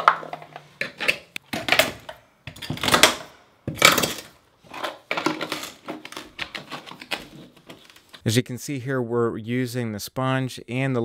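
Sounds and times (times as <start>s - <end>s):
knife scraping grout joints: 0.0s - 8.2s.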